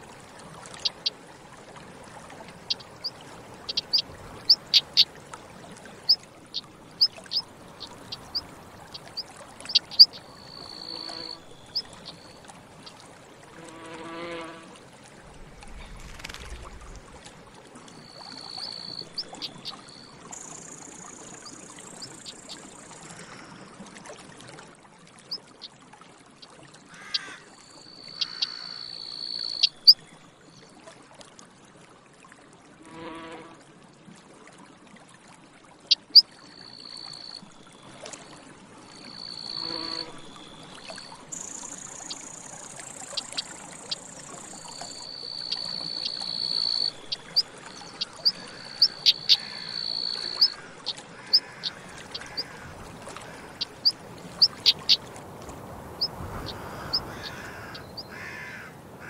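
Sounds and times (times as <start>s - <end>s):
flying insect buzzing: 39.5s - 40.2s.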